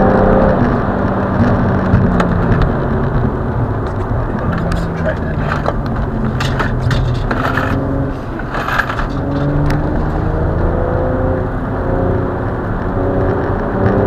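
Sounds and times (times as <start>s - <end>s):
car engine accelerating: 0.0s - 14.0s
rushing noise: 0.4s - 10.8s.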